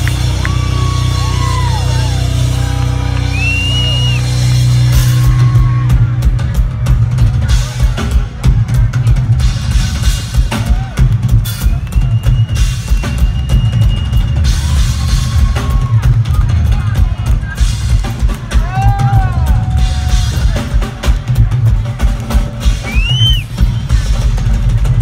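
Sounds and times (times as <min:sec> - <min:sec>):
crowd whistles: 0:00.0 - 0:04.6, 0:10.8 - 0:16.0, 0:22.7 - 0:24.0
drum solo on drum kit: 0:03.5 - 0:25.0.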